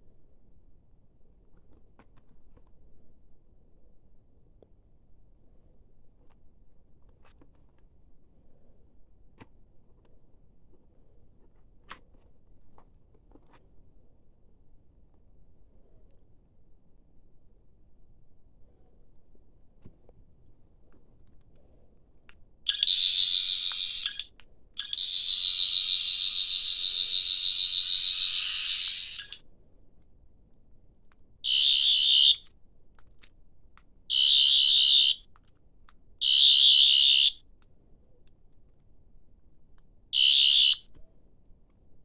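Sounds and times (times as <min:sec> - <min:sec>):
toy warbling whine: 0:22.7 - 0:29.4, 0:31.4 - 0:32.4, 0:34.1 - 0:35.2, 0:36.2 - 0:37.4, 0:40.2 - 0:40.8.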